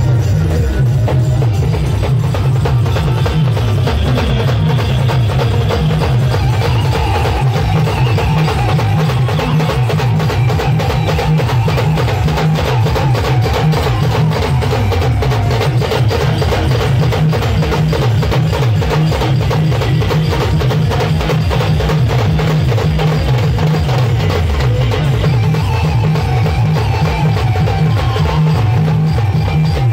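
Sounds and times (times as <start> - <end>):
heavy bass: 0.0 - 7.2
drum band playing fast rhythm: 0.0 - 29.9.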